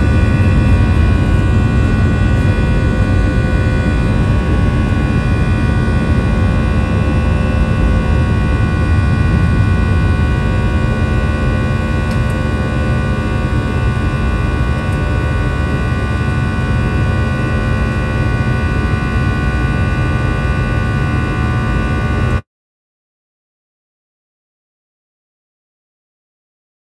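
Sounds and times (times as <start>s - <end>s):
airplane engine drone in cabin: 0.0s - 22.4s
constant whining tones: 0.0s - 22.4s.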